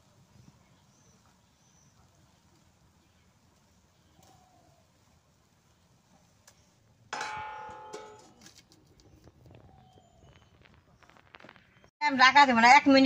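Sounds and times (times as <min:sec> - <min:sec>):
metal lid clanging on wok: 0:07.2 - 0:08.5
faint metal clinks: 0:07.2 - 0:08.6.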